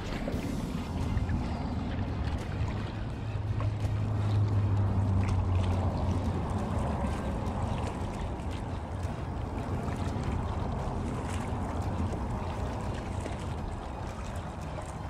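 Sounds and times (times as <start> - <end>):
small waves lapping on rocks: 0.0 - 15.0
steady low hum: 0.0 - 15.0
wind: 0.0 - 15.0.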